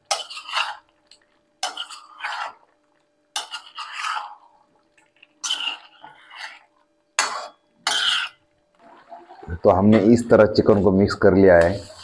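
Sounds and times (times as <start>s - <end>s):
metal spoon scraping metal pan: 0.0s - 0.9s, 1.6s - 2.6s, 3.3s - 4.5s, 5.4s - 8.4s, 11.1s - 12.0s.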